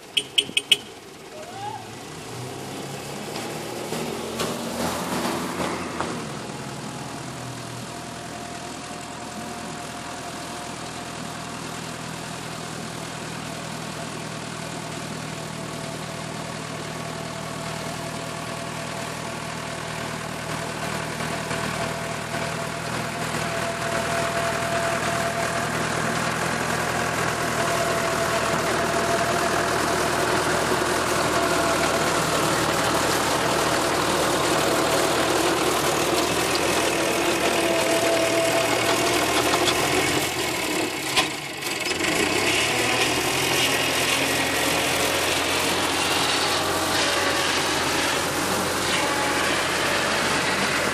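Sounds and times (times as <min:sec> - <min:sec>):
tractor engine running: 0:00.0 - 0:50.9
rotary implement cutting grass: 0:18.0 - 0:50.9.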